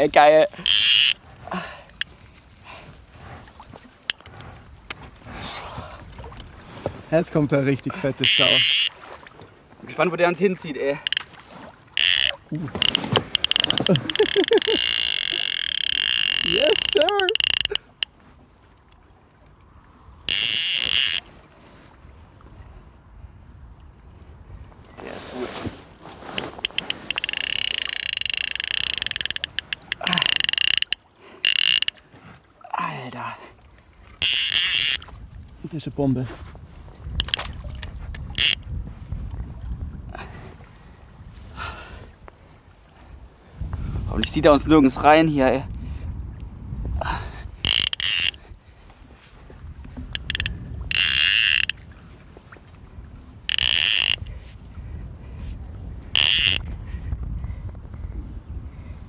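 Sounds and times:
fishing reel drag clicking: 0.6s - 1.2s, 4.1s - 4.5s, 8.2s - 8.9s, 11.0s - 11.3s, 12.0s - 18.1s, 20.3s - 21.3s, 26.4s - 32.0s, 34.2s - 35.1s, 37.2s - 37.4s, 38.4s - 38.6s, 44.2s - 44.4s, 47.6s - 48.5s, 49.9s - 51.8s, 53.5s - 54.3s, 56.1s - 56.7s.

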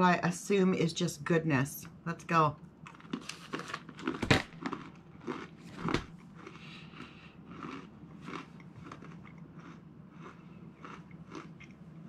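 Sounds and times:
person crunching snack: 2.9s - 11.8s.

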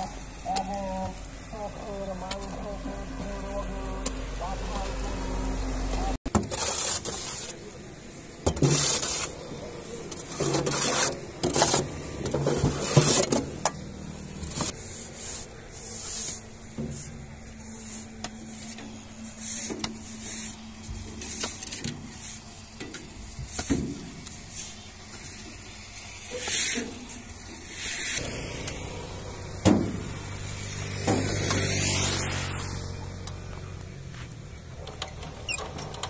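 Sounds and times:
soil sliding and falling: 6.0s - 36.0s
hoes scraping on steel: 6.3s - 7.7s, 8.4s - 25.2s.

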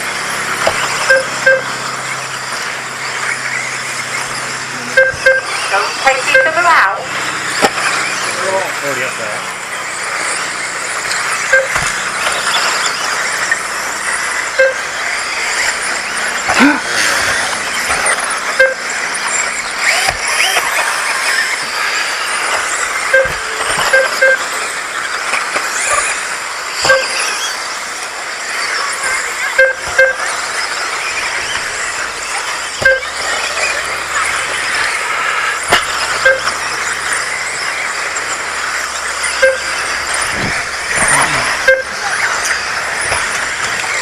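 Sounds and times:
rc car motors whining: 0.0s - 44.0s
short electronic beeps: 0.7s - 2.4s, 3.0s - 8.8s, 9.4s - 21.7s, 23.0s - 24.6s, 26.8s - 27.5s, 28.6s - 44.0s.

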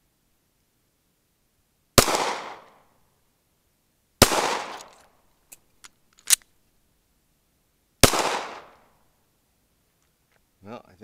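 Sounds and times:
pistol shot echoing: 2.0s - 2.7s, 4.2s - 4.9s, 8.0s - 8.8s.

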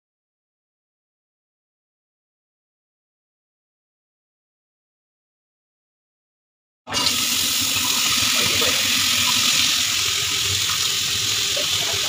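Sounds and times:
vegetables sizzling in a wok: 6.9s - 12.0s.

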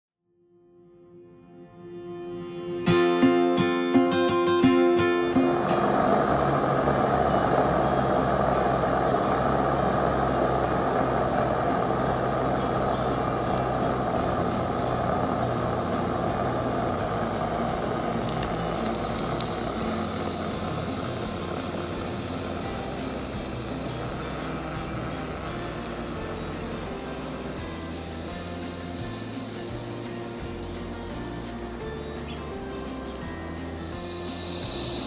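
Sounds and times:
steam hissing: 5.2s - 35.0s
thin high steady tone: 5.2s - 35.0s
sharp clicks: 17.8s - 22.2s.

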